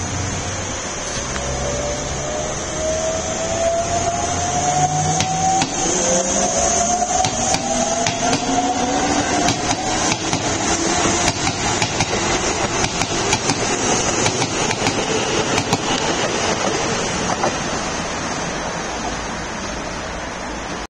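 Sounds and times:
electric train running: 0.0s - 20.4s
wheels clacking over rails: 4.6s - 19.8s.

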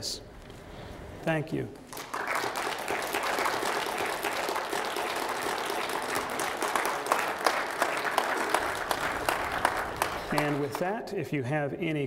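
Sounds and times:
audience applauding: 1.9s - 10.9s.

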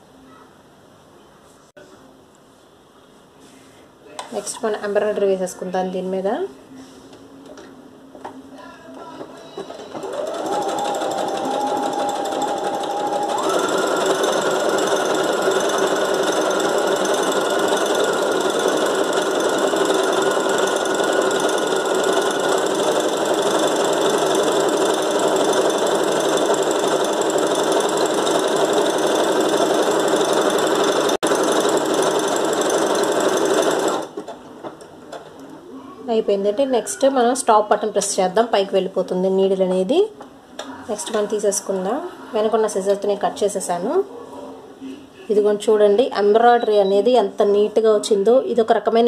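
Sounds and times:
sewing machine stitching: 9.6s - 34.4s.

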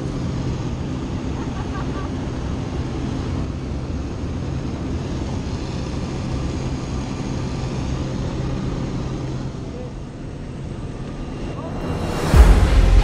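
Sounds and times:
propeller plane engine drone: 0.0s - 13.0s
rushing air noise: 10.3s - 13.0s.

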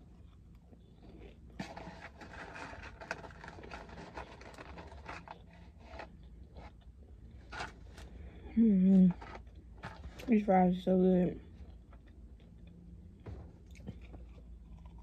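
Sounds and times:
low steady hum: 0.0s - 15.0s
food packaging crinkling: 1.5s - 6.8s.

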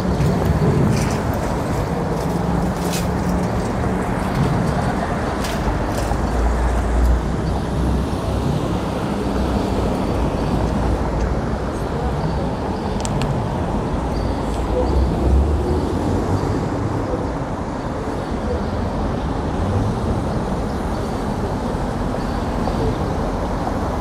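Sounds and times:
city traffic passing: 0.0s - 24.0s.

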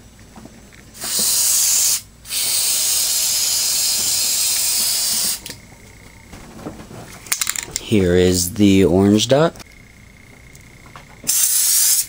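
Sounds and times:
spray paint can hissing: 1.0s - 5.6s, 11.3s - 12.0s.

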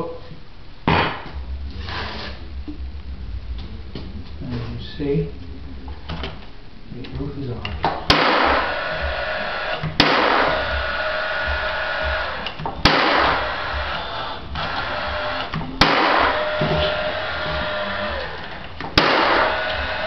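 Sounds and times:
nail gun shots: 8.0s - 8.8s, 9.8s - 11.0s, 12.1s - 13.9s, 15.2s - 17.0s, 18.2s - 20.0s
nailer whir: 8.1s - 20.0s.

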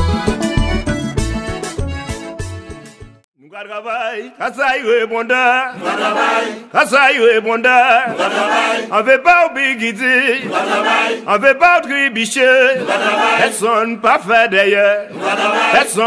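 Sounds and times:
male voices chanting: 3.5s - 16.0s.

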